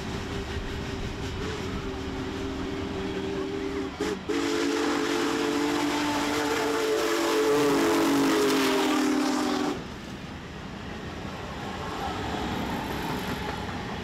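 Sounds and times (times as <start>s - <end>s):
steam whistle blast: 0.2s - 9.8s.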